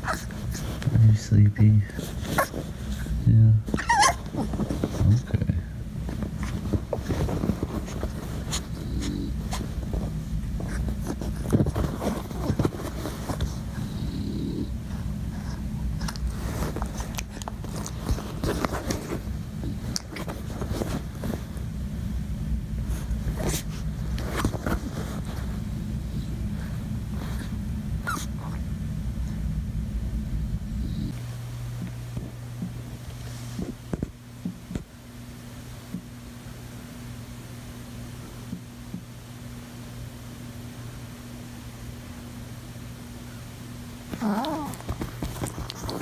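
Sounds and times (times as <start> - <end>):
puppy noises: 0.0 - 1.0, 1.9 - 5.3, 6.1 - 21.5, 23.0 - 28.7, 30.7 - 31.2, 44.1 - 46.0
low steady hum: 0.0 - 46.0
cloth rustling: 6.0 - 13.7.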